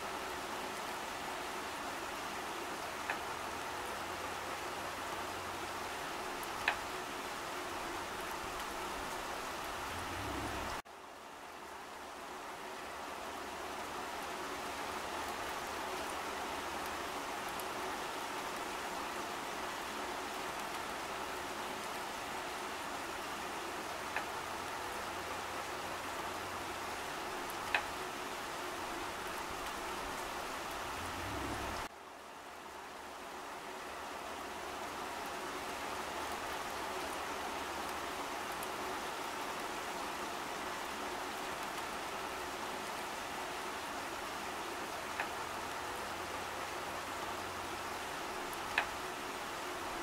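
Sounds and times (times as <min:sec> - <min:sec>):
rain on leaves: 0:00.0 - 0:50.0
faint drip ticks: 0:03.0 - 0:03.3, 0:06.4 - 0:06.9, 0:24.1 - 0:24.4, 0:27.4 - 0:28.0, 0:45.2 - 0:45.4, 0:48.1 - 0:49.0.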